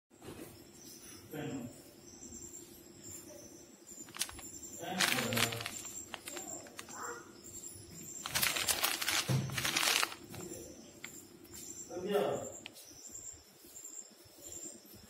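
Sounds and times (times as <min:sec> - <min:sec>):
plastic pouch crinkling: 0:04.1 - 0:07.0, 0:08.2 - 0:10.6.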